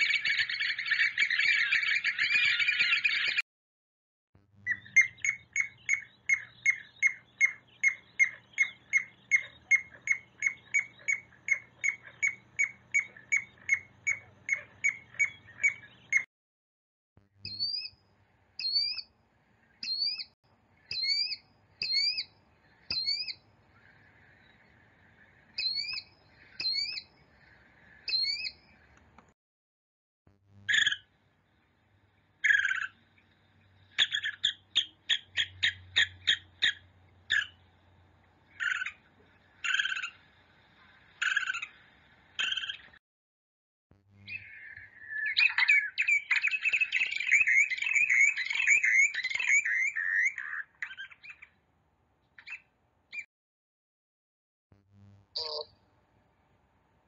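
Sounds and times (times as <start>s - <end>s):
killdeer calling: 0.0s - 3.4s, 4.7s - 16.2s, 17.4s - 18.0s, 18.6s - 19.1s, 19.8s - 28.8s, 30.7s - 31.1s, 32.4s - 37.7s, 38.4s - 40.3s, 41.2s - 41.8s, 42.4s - 43.0s, 44.2s - 51.6s, 55.4s - 55.8s
plover piping whistles: 0.0s - 3.4s, 4.7s - 16.3s, 17.4s - 18.0s, 18.6s - 19.1s, 19.8s - 28.8s, 33.8s - 37.6s, 44.3s - 51.5s.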